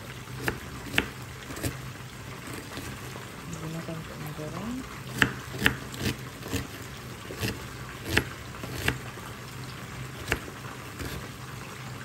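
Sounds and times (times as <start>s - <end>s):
knife chopping on cutting board: 0.4s - 1.8s, 5.1s - 9.0s, 10.2s - 11.2s.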